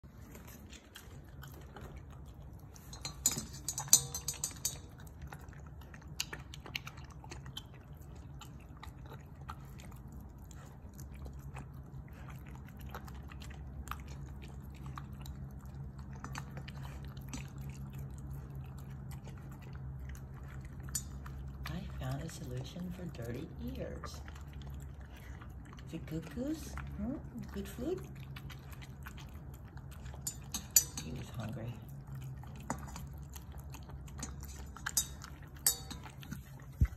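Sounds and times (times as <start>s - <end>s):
puppy chewing and licking: 0.0s - 36.9s
clinks on a metal bowl: 2.6s - 5.6s, 19.6s - 24.4s, 29.9s - 36.9s.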